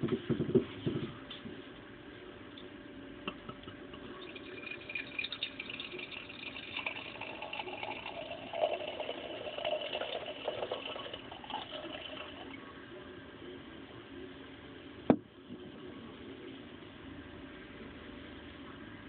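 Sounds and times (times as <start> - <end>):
beer pouring and gurgling: 3.3 - 12.8.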